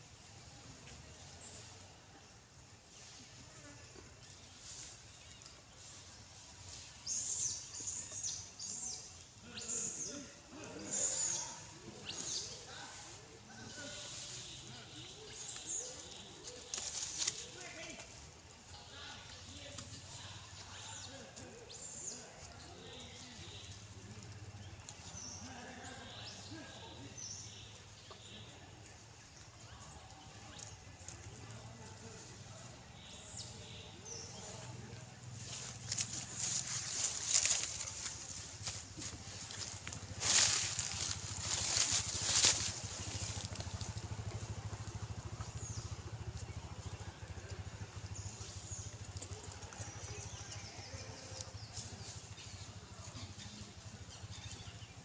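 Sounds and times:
steady low hum: 28.6 - 55.0.

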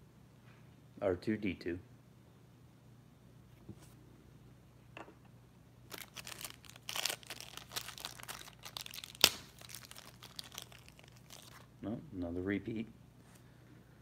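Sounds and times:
packaging being torn and crinkled: 5.9 - 11.8.

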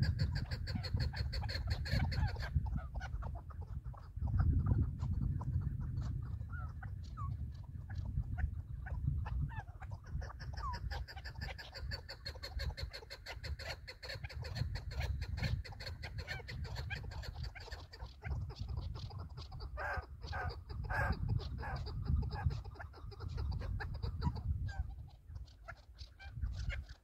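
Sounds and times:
partridge clucking calls: 0.0 - 27.0
wind rumbling on microphone: 0.0 - 27.0.

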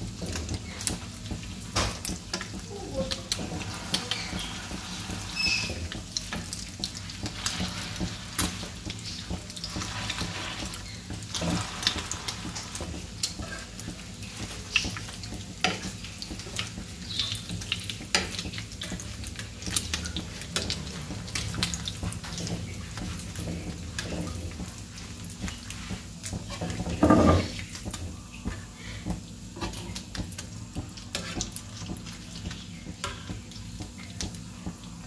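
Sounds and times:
patties sizzling in oil: 0.0 - 35.0.

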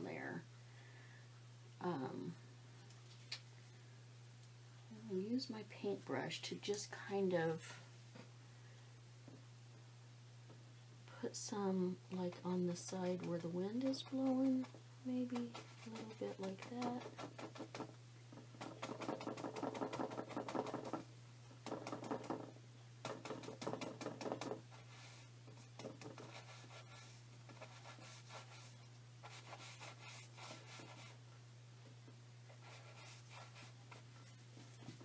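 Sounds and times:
steady low hum: 0.0 - 35.0
paintbrush scrubbing on canvas: 15.4 - 17.8, 25.9 - 31.2, 32.6 - 34.9.

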